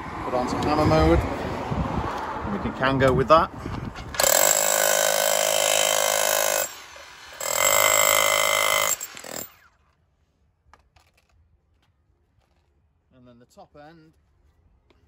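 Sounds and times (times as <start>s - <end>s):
rotary hammer drilling into concrete: 4.1s - 9.8s.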